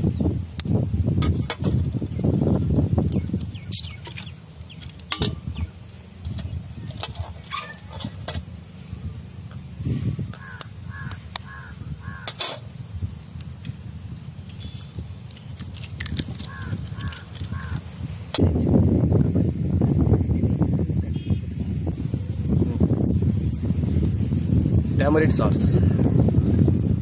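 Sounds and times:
bird calling: 3.2 - 8.2, 10.3 - 12.5, 16.4 - 17.9
eggshells tapped and crackling: 14.8 - 17.9.

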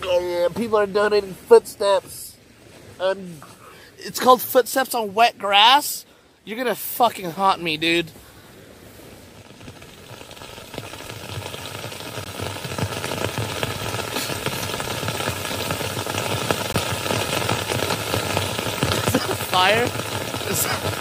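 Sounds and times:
footsteps on wet grass: 9.0 - 21.0.

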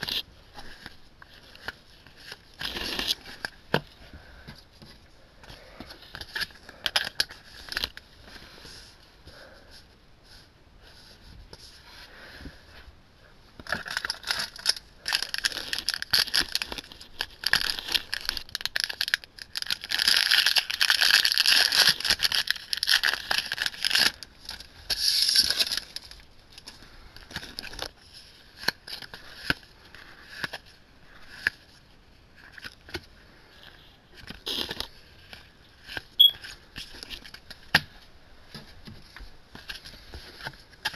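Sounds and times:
foil wrappers crinkling and tearing: 0.0 - 3.6, 6.0 - 8.0, 13.6 - 33.0, 34.1 - 37.8.

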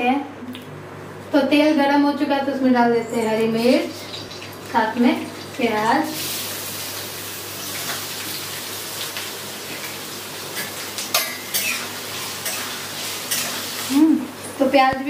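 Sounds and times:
onions sizzling in hot oil: 3.6 - 14.8.

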